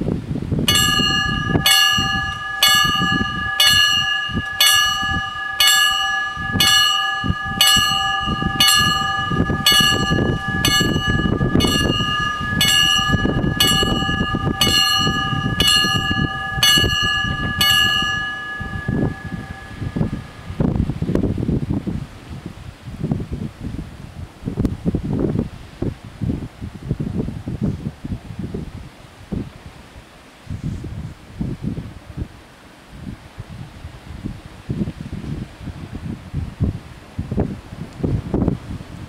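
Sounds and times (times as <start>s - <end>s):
level crossing warning bells: 0.7s - 20.6s.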